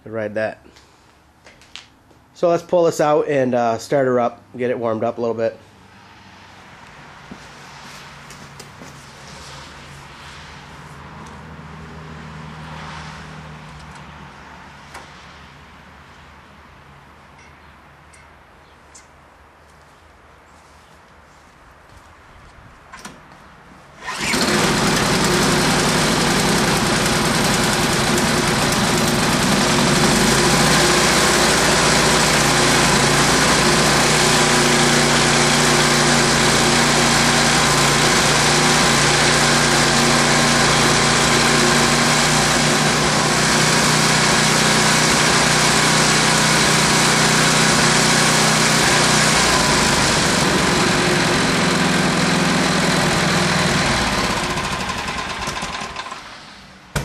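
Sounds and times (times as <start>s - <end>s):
snowblower engine running: 24.0s - 57.0s.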